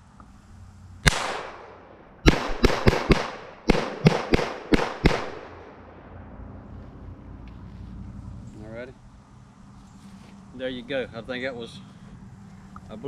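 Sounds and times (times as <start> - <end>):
pistol shots with echo: 1.0 - 5.8.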